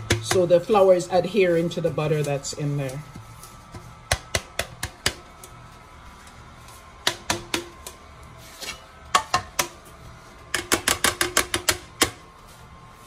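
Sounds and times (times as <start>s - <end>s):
metal cake pan tapping: 10.5s - 12.2s.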